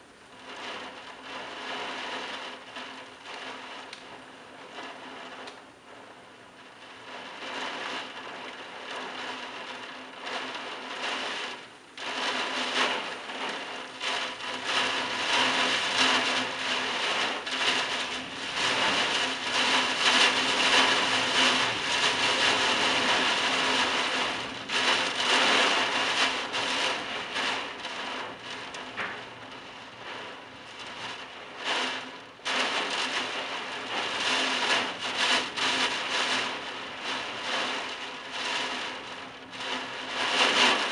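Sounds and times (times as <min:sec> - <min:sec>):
heavy rain: 0:00.0 - 0:40.9.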